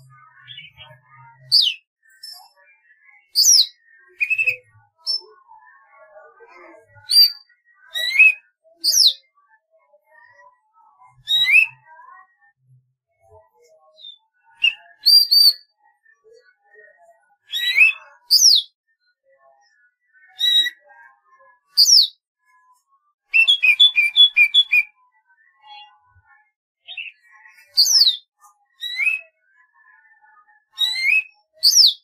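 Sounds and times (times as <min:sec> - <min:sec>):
bird singing whistled phrases: 0:01.5 - 0:01.8, 0:03.4 - 0:05.3, 0:07.1 - 0:09.2, 0:11.2 - 0:11.8, 0:14.0 - 0:15.6, 0:23.3 - 0:24.9, 0:27.8 - 0:28.2, 0:28.8 - 0:29.3, 0:30.8 - 0:32.0.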